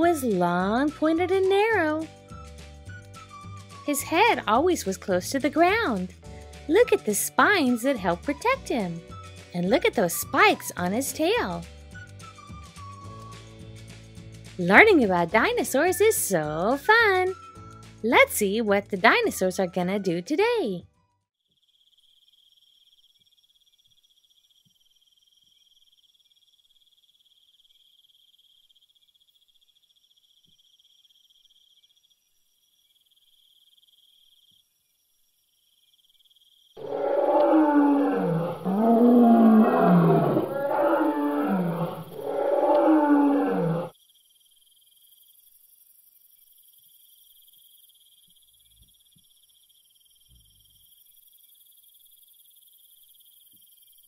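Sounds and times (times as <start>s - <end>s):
faint cricket-like chirring: 21.4s - 54.0s
dinosaur roars: 36.8s - 43.9s.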